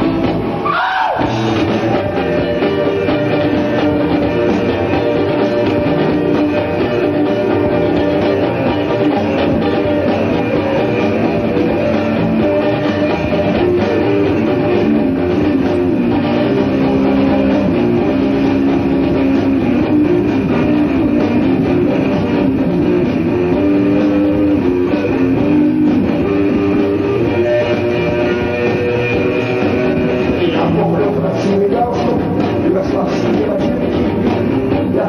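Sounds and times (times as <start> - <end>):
drums: 0.0 - 35.0
electric guitars: 0.0 - 35.0.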